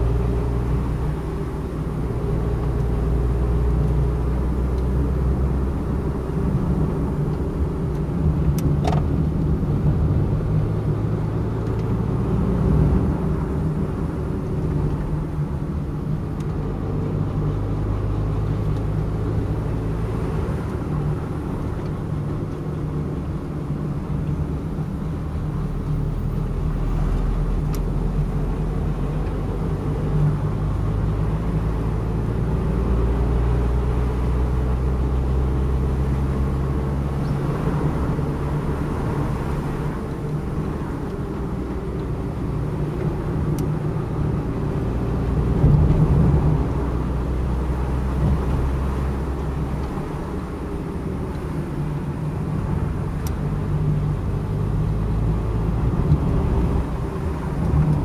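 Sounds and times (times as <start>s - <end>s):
car engine running: 0.0s - 58.0s
tyre and road rumble: 0.0s - 58.0s.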